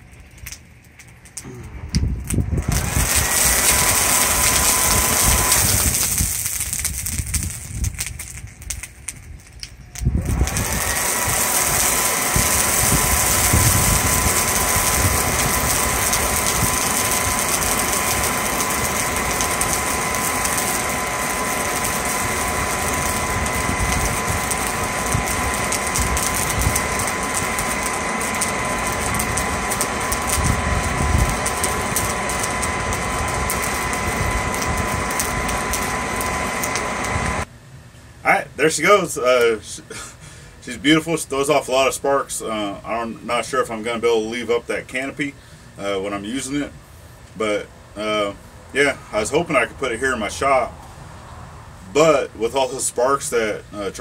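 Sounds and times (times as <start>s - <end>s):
rushing air: 1.4s - 37.5s
hairdryer motor whine: 2.6s - 7.6s, 10.0s - 37.5s.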